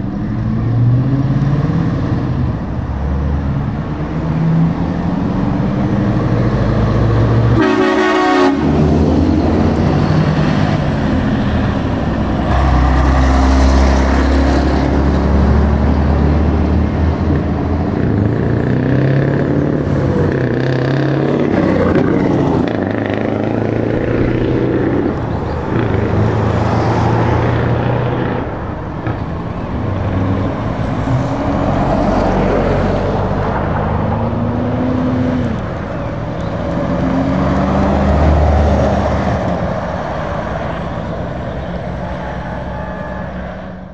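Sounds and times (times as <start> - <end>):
trucks driving past: 0.0 - 43.9
truck horn: 7.4 - 9.2, 12.4 - 14.4, 40.6 - 43.9.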